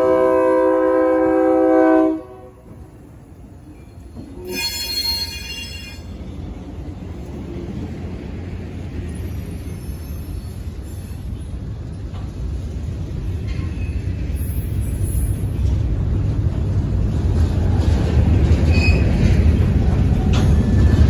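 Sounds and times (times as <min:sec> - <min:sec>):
train wheels rumbling on rails: 0:00.0 - 0:21.0
high wheel squeal: 0:04.4 - 0:06.1, 0:18.7 - 0:19.2.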